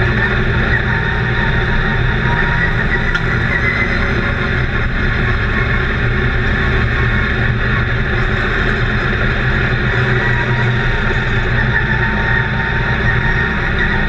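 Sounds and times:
constant rushing noise: 0:00.0 - 0:14.0
race car engine running: 0:00.0 - 0:14.0.

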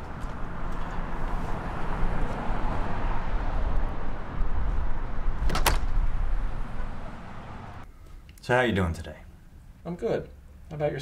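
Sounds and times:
passing road traffic: 0:00.0 - 0:07.9.

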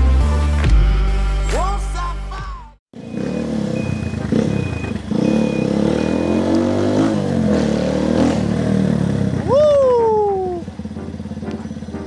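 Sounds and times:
loud motorcycle engine: 0:02.9 - 0:12.0
short high beeps: 0:03.0 - 0:06.8.

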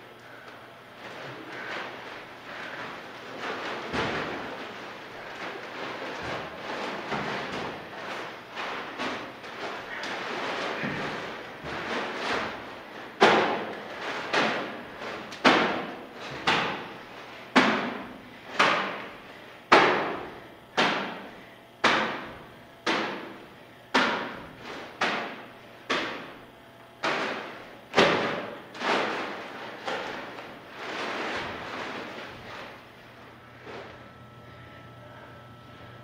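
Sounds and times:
heavy bags thudding on floor: 0:01.1 - 0:17.0.

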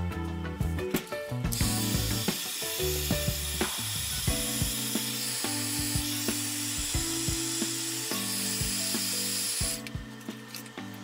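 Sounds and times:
background music: 0:00.0 - 0:11.0
heat gun blowing hiss: 0:01.5 - 0:09.9.

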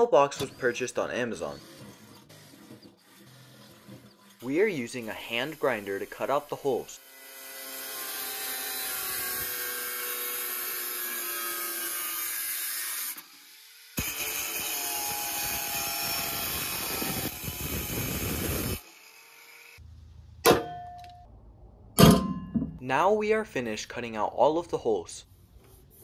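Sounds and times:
angle grinder cutting sheet steel: 0:00.6 - 0:19.8.

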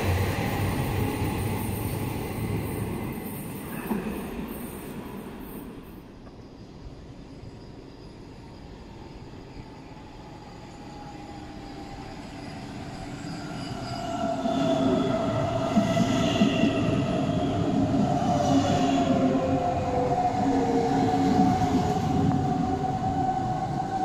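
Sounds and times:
train wheel rumble: 0:00.0 - 0:07.3
electric train passing: 0:00.0 - 0:24.0.

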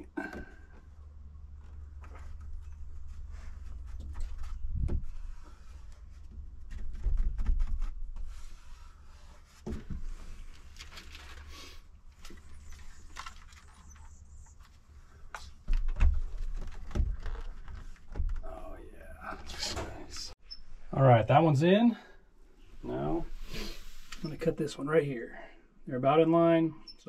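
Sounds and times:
rubbing and scraping handling: 0:01.5 - 0:18.4.

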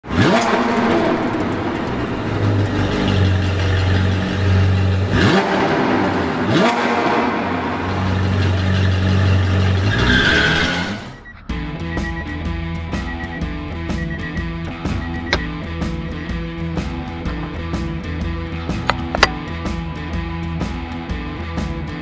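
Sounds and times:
sports car engine revving: 0:00.0 - 0:11.3.

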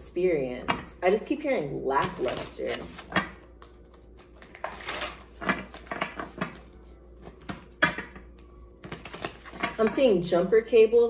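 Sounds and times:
cards being shuffled: 0:02.0 - 0:07.8, 0:08.8 - 0:09.9.

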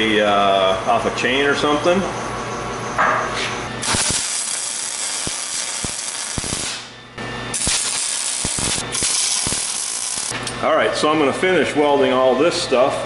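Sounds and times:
welder arc crackling hiss: 0:03.8 - 0:06.9, 0:07.5 - 0:10.4.

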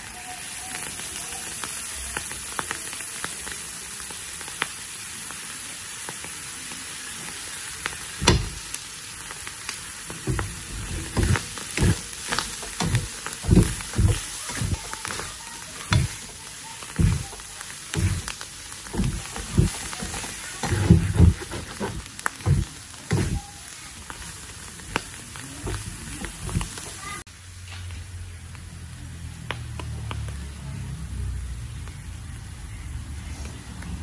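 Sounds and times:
ants sizzling in a pan: 0:00.0 - 0:34.0
spatula scraping a pan: 0:10.1 - 0:23.5, 0:25.6 - 0:27.2.

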